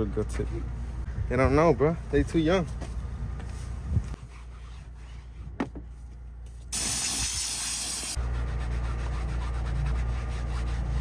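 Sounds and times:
air blow gun hissing: 6.7s - 8.2s.

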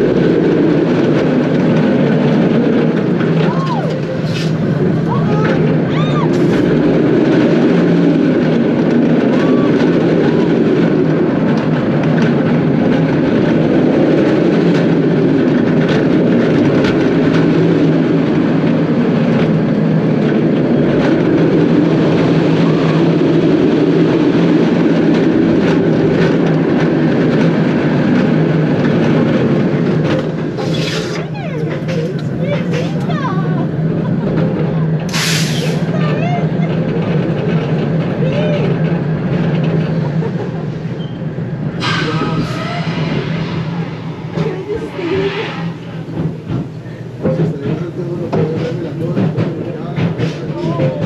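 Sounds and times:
wind rush: 0.0s - 30.6s, 38.7s - 47.4s
roller coaster wheels roaring on rail: 0.0s - 51.0s.

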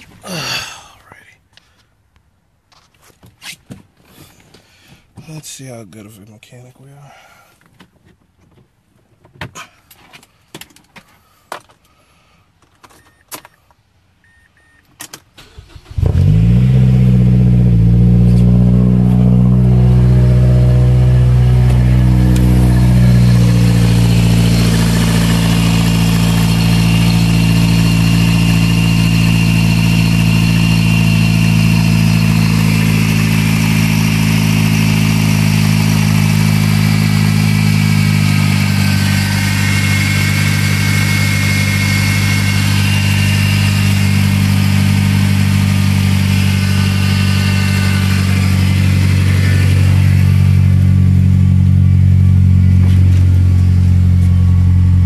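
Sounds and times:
car engine idling: 15.4s - 55.0s.

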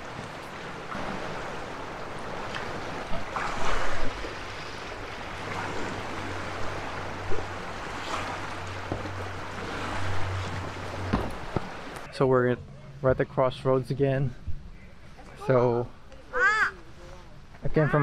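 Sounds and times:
waves splashing against rocks: 0.0s - 12.1s.

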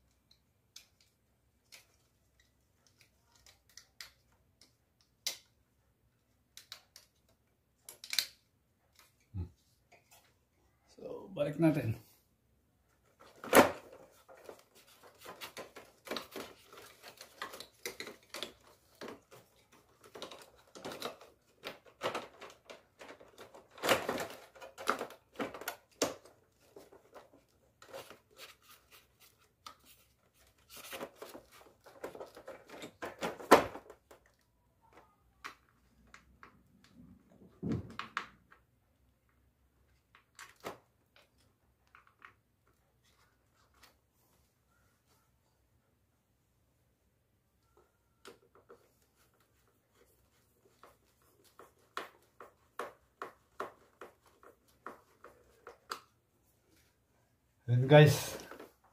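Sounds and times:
plastic clicks knocks and rattles: 6.5s - 9.3s, 13.1s - 28.5s, 29.7s - 38.8s.

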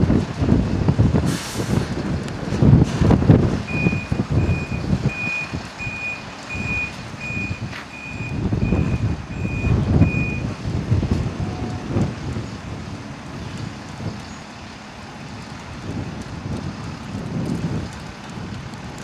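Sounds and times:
vehicle reversing alarm beeping: 3.6s - 10.6s.

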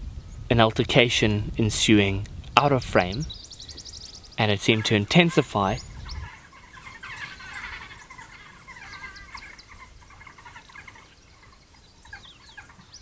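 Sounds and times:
wild dogs twittering and squealing: 3.2s - 13.0s.

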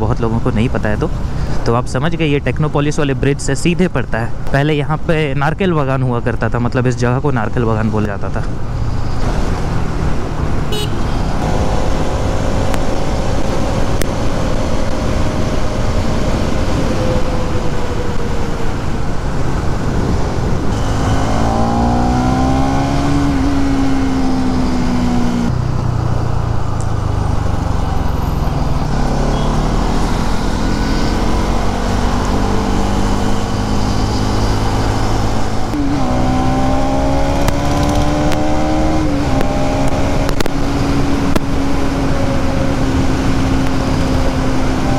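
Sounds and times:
wind and road noise: 0.0s - 44.9s
motorcycle engine revving: 20.1s - 25.6s, 27.3s - 44.9s.

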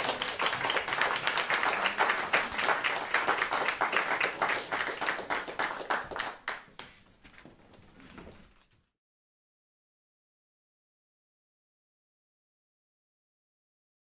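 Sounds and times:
small audience applauding: 0.0s - 7.0s.

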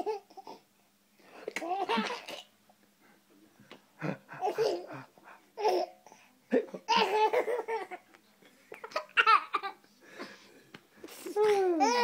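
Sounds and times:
baby laughing hysterically: 4.3s - 5.9s, 8.8s - 9.8s.

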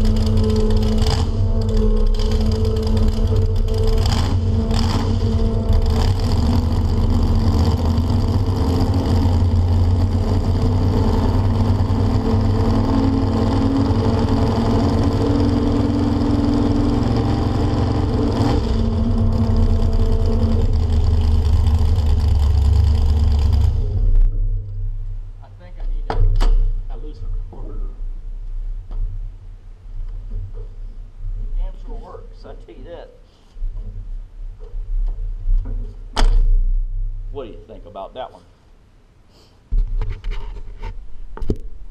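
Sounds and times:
pickup engine running loud: 0.0s - 25.4s.

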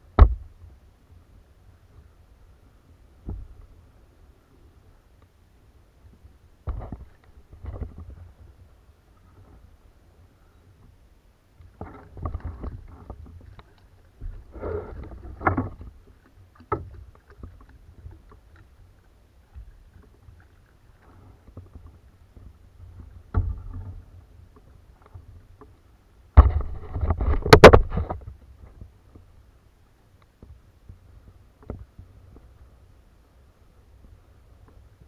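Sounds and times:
low handling rumble: 11.6s - 27.2s.

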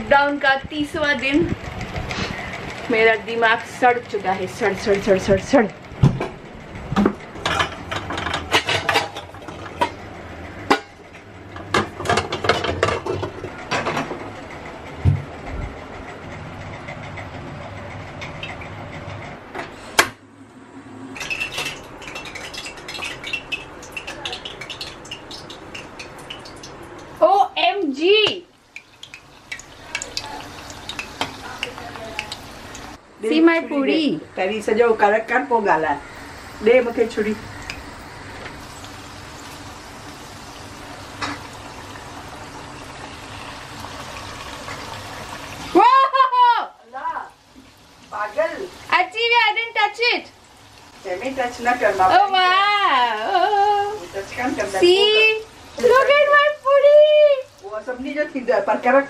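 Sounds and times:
deep-frying sizzling and bubbling: 0.0s - 59.0s
utensils and cookware clinking: 7.3s - 10.0s, 11.6s - 14.1s, 21.1s - 27.2s, 28.2s - 33.0s.

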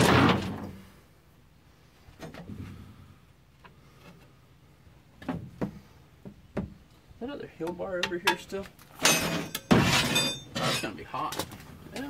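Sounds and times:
metal knocks and scraping: 0.0s - 0.8s, 8.0s - 11.6s
pry bar clanking on steel: 8.0s - 11.5s
loud metal clang: 9.0s - 10.5s.

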